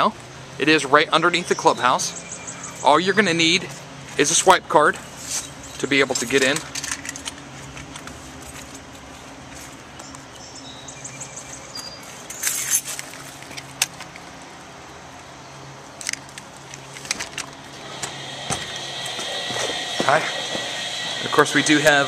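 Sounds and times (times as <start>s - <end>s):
keys jangling: 12.2s - 14.3s
steady low hum: 17.5s - 22.0s.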